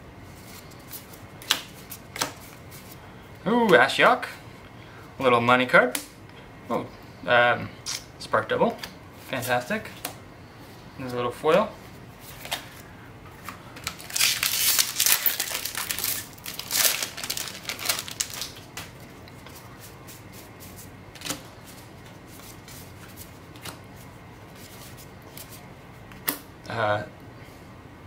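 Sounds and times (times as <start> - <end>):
wrapper crinkling and tearing: 13.8 - 18.9.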